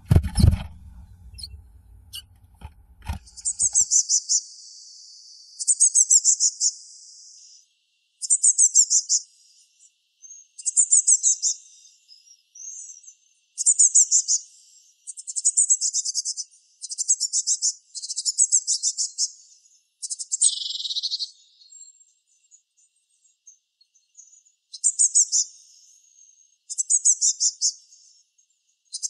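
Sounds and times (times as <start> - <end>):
blue tit calling: 3.1 - 4.4.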